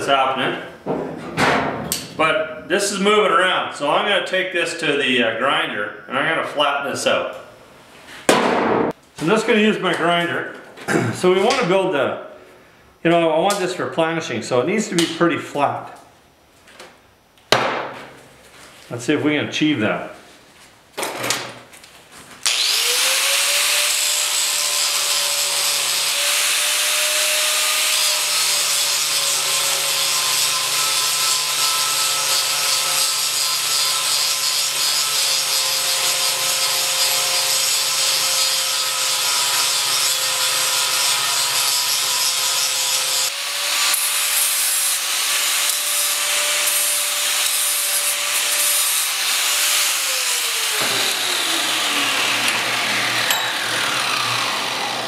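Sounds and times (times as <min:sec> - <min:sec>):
angle grinder grinding steel: 0:22.5 - 0:55.0.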